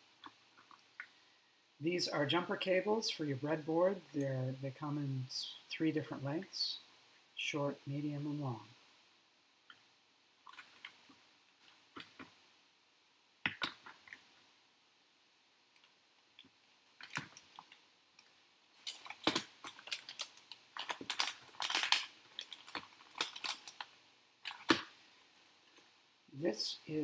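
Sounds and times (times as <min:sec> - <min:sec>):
plastic bag crinkling: 0:16.9 - 0:25.0.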